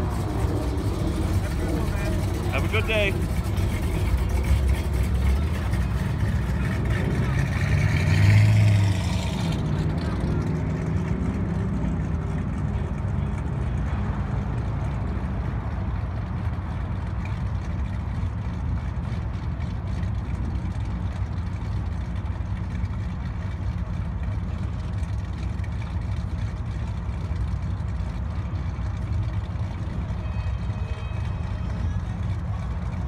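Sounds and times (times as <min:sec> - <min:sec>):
car engine idling: 0:00.0 - 0:33.0.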